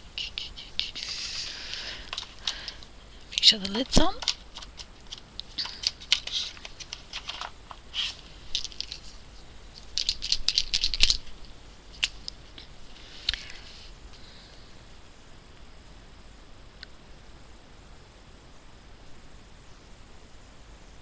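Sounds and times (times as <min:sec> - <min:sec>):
plastic pens clicking and clattering: 0:00.2 - 0:11.3.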